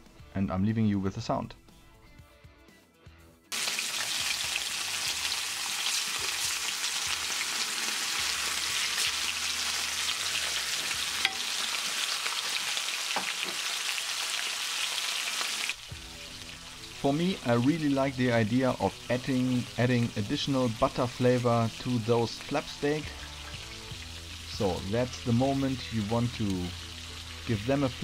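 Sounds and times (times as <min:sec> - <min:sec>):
steak sizzling in a pan: 0:03.5 - 0:28.0.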